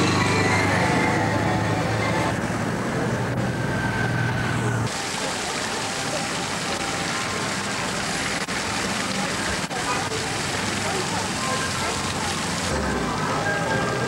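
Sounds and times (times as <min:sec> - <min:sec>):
motorcycle engines running: 0:00.0 - 0:04.8
fountain water splashing: 0:04.6 - 0:14.0.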